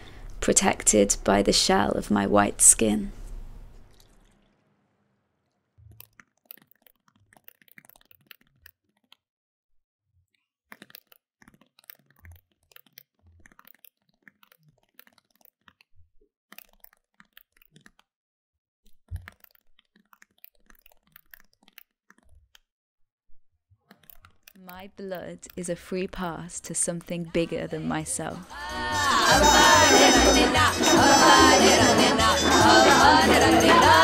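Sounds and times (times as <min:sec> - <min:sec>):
keyboard typing clicks: 0:23.9 - 0:27.2.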